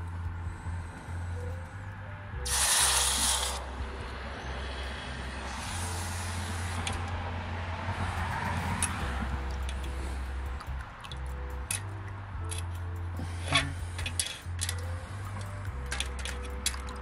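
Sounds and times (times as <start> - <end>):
hot metal hissing in water: 2.5 - 3.7, 5.5 - 7.0.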